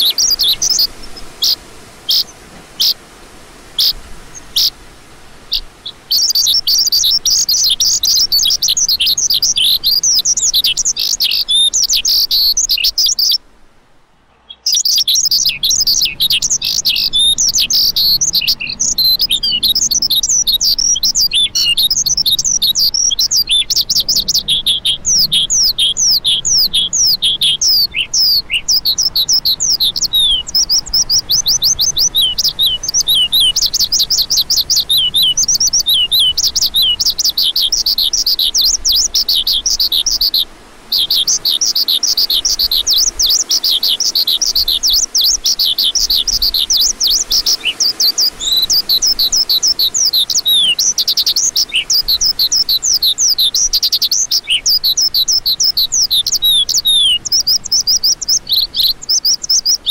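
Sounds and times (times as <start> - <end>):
lark chirping song: 0.0 - 3.0, 3.8 - 4.8, 5.5 - 13.4, 14.3 - 59.9.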